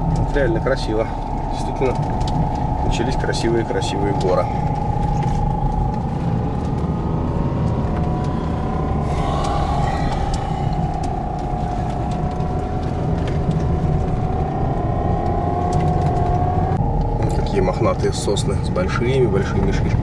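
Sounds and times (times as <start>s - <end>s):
thin whine: 0.0s - 16.1s
car engine and tyre rumble: 10.2s - 20.0s.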